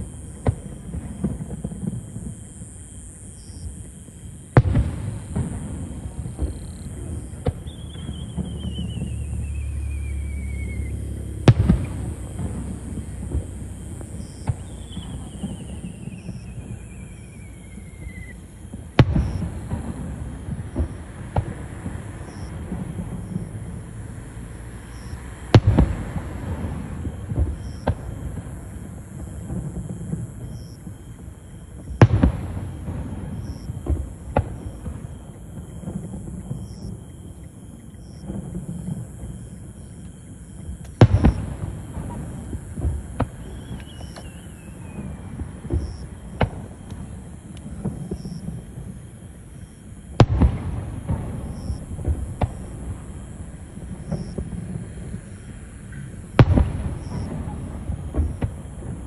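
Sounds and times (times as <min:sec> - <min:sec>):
fireworks bangs: 0:00.0 - 0:59.0
faint wavering whistle: 0:07.6 - 0:11.2, 0:14.7 - 0:18.4.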